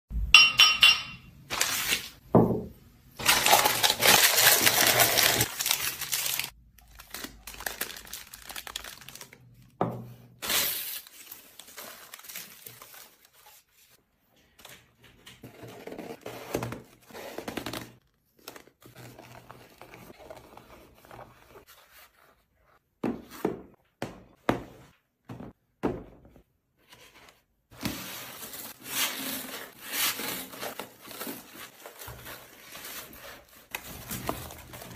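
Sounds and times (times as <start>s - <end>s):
glass clinking: 0.4s - 1.4s.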